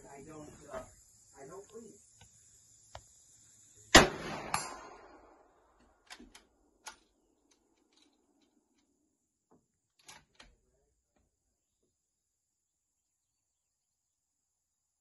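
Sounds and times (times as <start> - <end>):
weaker sharp crack: 3.9 - 5.4
rifle shot with rolling echo: 3.9 - 5.6.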